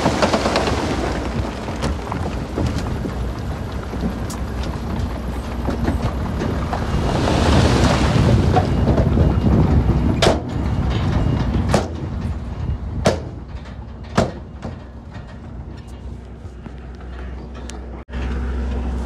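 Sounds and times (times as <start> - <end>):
loose stone rushing and sliding: 0.0 - 9.2
diesel machinery running: 0.0 - 19.0.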